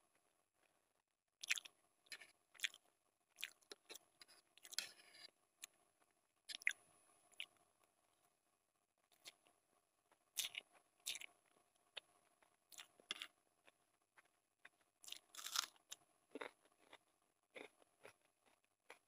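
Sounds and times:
chewing noodles: 1.4s - 2.8s, 3.4s - 4.0s, 10.3s - 19.0s.

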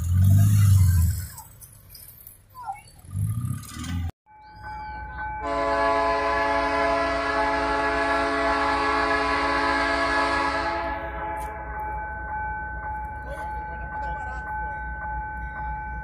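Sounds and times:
train air horn chord: 5.4s - 11.8s.

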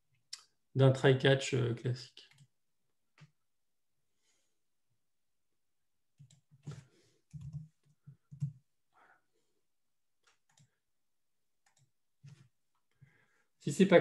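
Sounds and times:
keyboard keystrokes: 7.3s - 7.7s.

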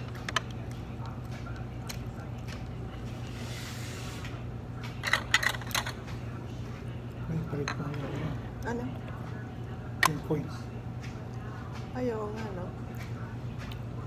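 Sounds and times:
restaurant dining room hum: 0.0s - 14.0s
tableware clattering: 5.0s - 6.0s.

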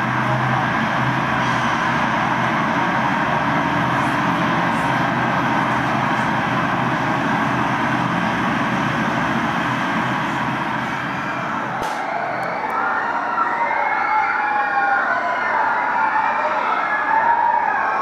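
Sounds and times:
mechanical rumble and hiss over loudspeakers: 0.0s - 12.1s.

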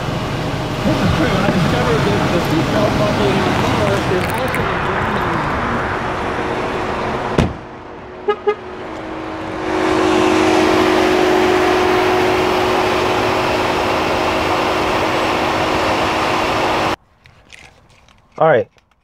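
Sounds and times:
car running whir and hum: 0.0s - 17.8s
car door shutting: 7.3s - 7.7s
car horn chirps: 8.2s - 8.8s.

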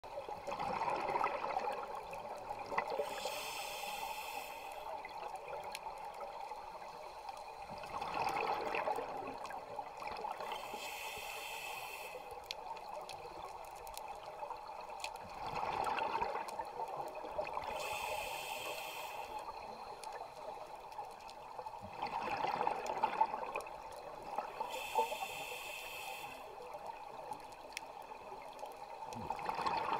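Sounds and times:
bubbling exhaust underwater: 0.1s - 6.0s, 7.6s - 13.6s, 14.2s - 20.2s, 21.6s - 29.9s
hissing regulator inhale: 3.0s - 5.0s, 10.4s - 12.4s, 17.7s - 19.6s, 24.6s - 26.6s.

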